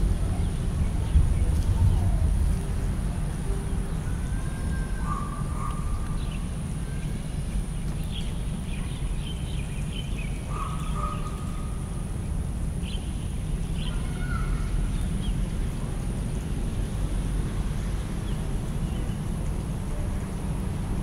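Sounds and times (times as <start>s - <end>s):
low rumble: 0.0s - 9.1s.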